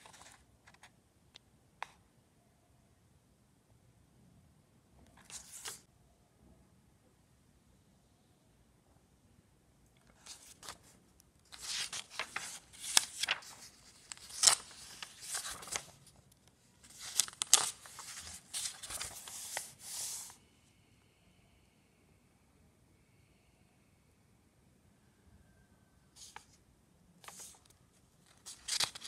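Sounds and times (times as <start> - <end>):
paper pages turning: 0.0 - 0.9, 5.2 - 5.8, 10.1 - 20.4, 27.2 - 29.0.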